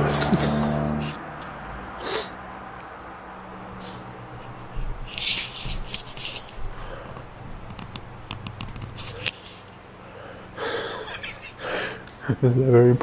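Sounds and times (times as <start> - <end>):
rustling and scraping: 3.7 - 6.9, 7.8 - 9.8.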